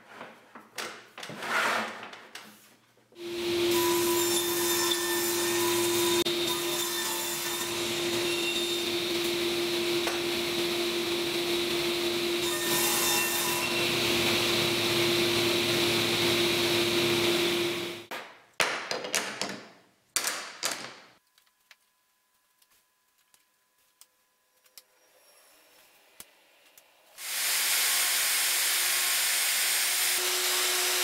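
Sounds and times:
table saw cutting wood: 0:03.2 - 0:18.1, 0:27.2 - 0:31.0.

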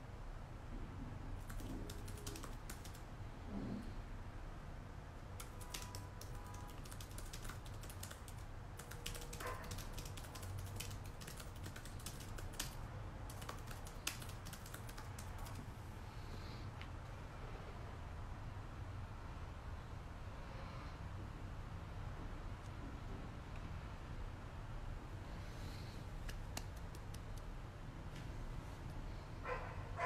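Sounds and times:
faint low hum: 0:00.0 - 0:30.0
keyboard typing clicks: 0:01.4 - 0:03.0, 0:05.4 - 0:15.6.

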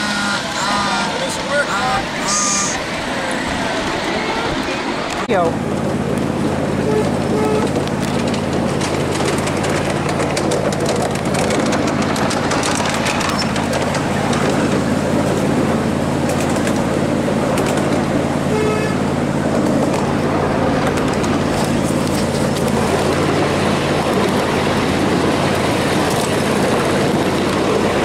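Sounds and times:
train horn toot: 0:00.0 - 0:02.9, 0:06.8 - 0:07.8, 0:18.4 - 0:19.2
miniature train engine drone: 0:00.0 - 0:28.0
wheels clicking on rails: 0:00.0 - 0:28.0.

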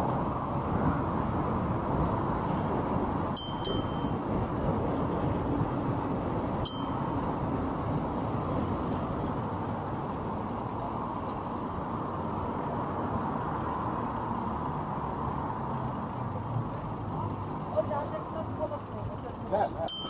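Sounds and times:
rushing wind: 0:00.0 - 0:13.4
bicycle road noise: 0:00.0 - 0:20.0
bicycle bell ding: 0:03.4 - 0:04.2, 0:06.6 - 0:07.3.

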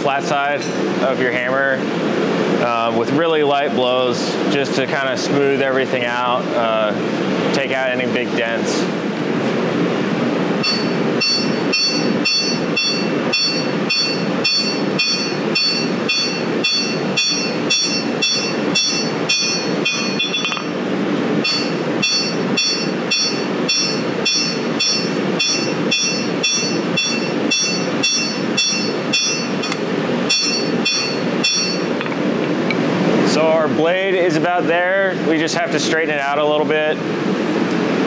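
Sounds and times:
steady low rumble: 0:00.0 - 0:38.0
hammer ringing on anvil: 0:10.6 - 0:20.8, 0:21.4 - 0:32.1.

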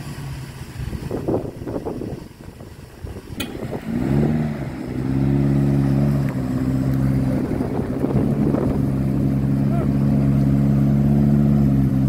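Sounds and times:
car engine revving under load: 0:03.0 - 0:12.0
short sharp click: 0:03.4 - 0:03.7.

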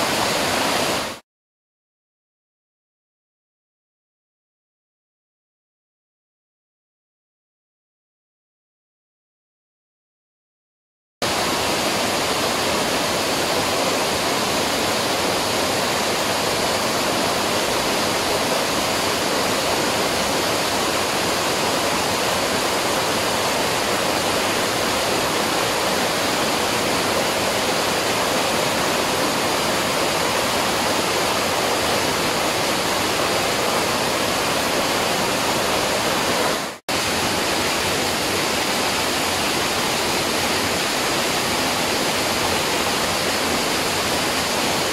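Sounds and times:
waterfall rushing: 0:00.0 - 0:01.2, 0:11.2 - 0:44.9.

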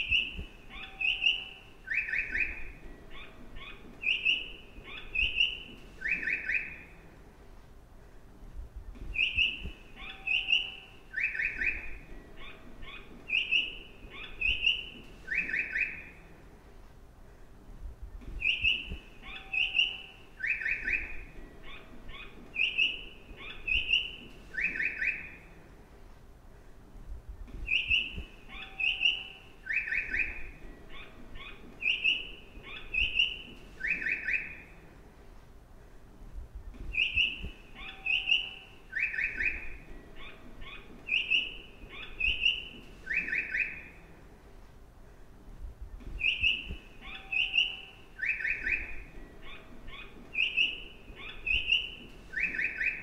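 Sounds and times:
recorded bird chirps: 0:00.0 - 0:07.4, 0:08.0 - 0:16.8, 0:17.4 - 0:53.0.

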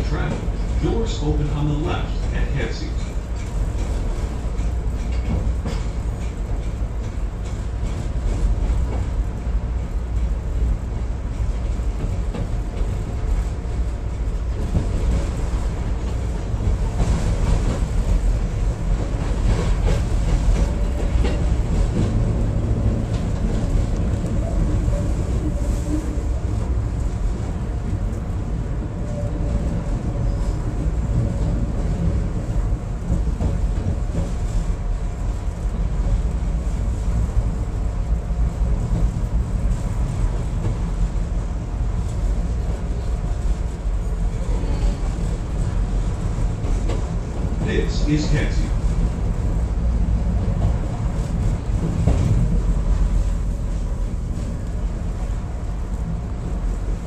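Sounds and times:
train wheels rumbling on rails: 0:00.0 - 0:57.0
clatter over rail joints: 0:03.0 - 0:09.2.

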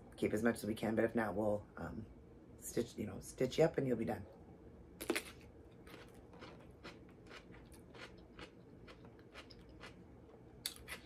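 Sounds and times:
crunchy chewing: 0:05.0 - 0:10.0.

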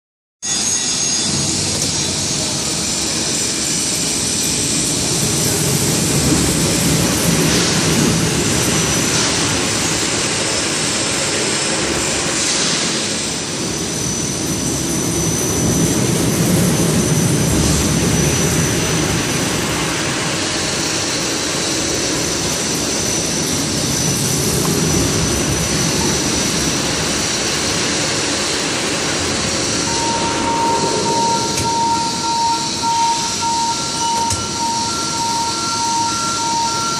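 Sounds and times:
crane motors and wheels rumbling: 0:00.4 - 0:36.9
thin high whine: 0:00.4 - 0:36.9
steady tone: 0:21.0 - 0:36.9.

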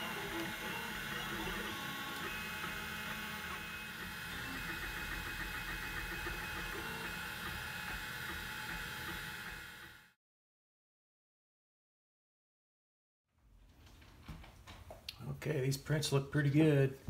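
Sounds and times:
printer fan and motors whirring: 0:00.0 - 0:10.2.

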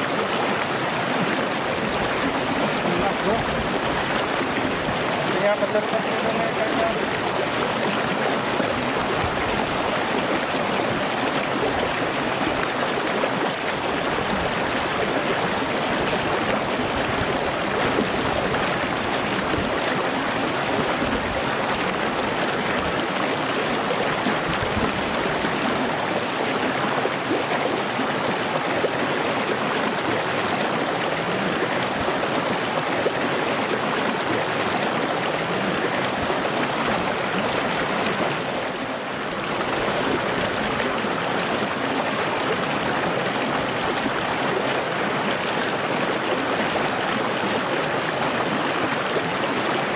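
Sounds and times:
stream babbling over stones: 0:00.0 - 0:49.9.

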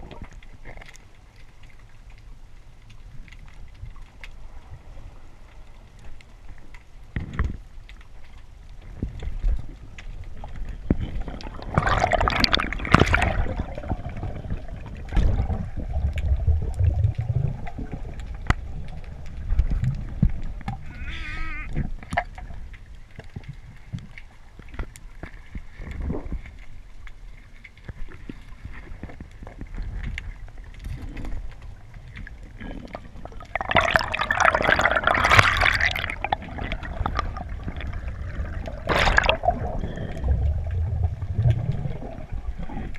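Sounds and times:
underwater clicks and crackles: 0:00.0 - 0:42.9
underwater water movement: 0:00.0 - 0:42.9
air bubbles gushing: 0:10.7 - 0:20.9, 0:31.9 - 0:42.9.

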